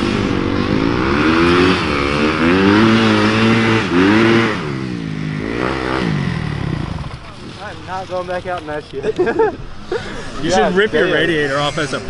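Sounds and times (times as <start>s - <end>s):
dirt bike engine revving: 0.0s - 8.5s.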